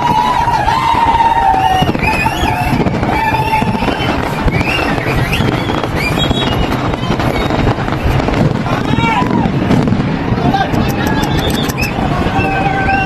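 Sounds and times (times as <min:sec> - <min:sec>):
fireworks bangs and crackle: 0:00.0 - 0:13.0.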